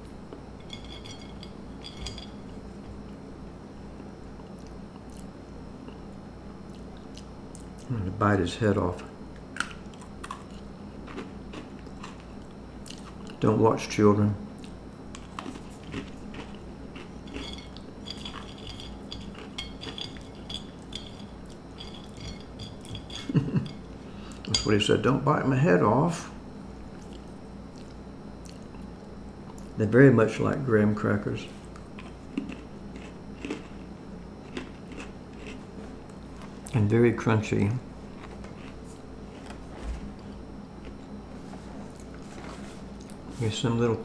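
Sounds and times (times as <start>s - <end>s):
crackers clinking on china plate: 0.6s - 2.6s, 15.2s - 23.8s.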